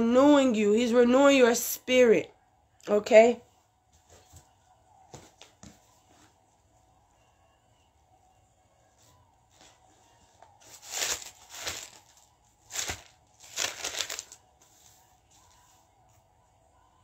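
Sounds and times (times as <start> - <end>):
paper pages rustling: 10.5 - 15.6.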